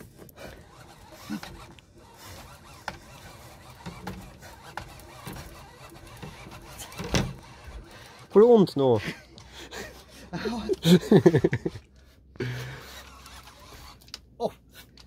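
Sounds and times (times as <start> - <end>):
fishing reel rasping: 0.4 - 8.5, 12.6 - 14.2.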